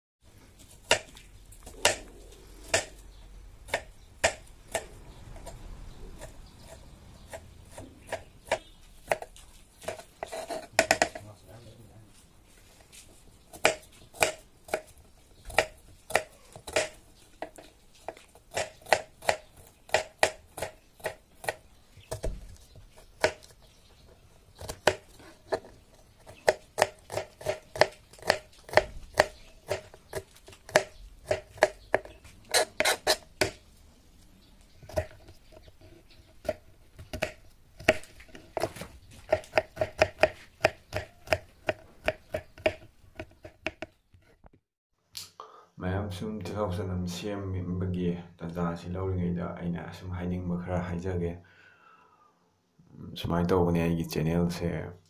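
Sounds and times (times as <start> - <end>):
knife chopping on plastic board: 0.8 - 3.0, 3.7 - 4.9, 6.2 - 11.2, 13.5 - 14.9, 15.5 - 23.6, 24.6 - 33.6, 34.9 - 35.7, 36.3 - 44.0.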